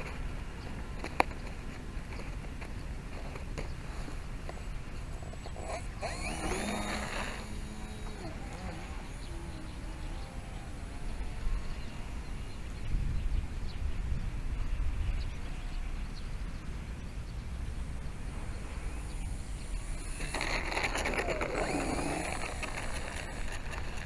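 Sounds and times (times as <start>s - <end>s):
small electric motor whine: 3.3s - 12.8s, 18.1s - 24.0s
wind rumble on microphone: 7.2s - 24.0s.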